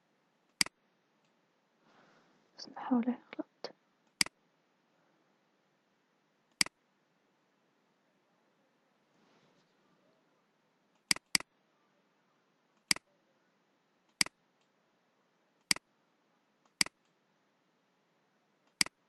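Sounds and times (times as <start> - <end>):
computer mouse button clicking: 11.1 - 11.4.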